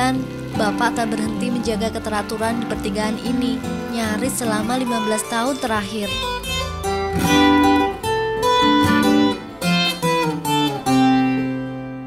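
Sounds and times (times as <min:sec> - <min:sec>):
acoustic guitar slow melody: 0:00.0 - 0:12.0.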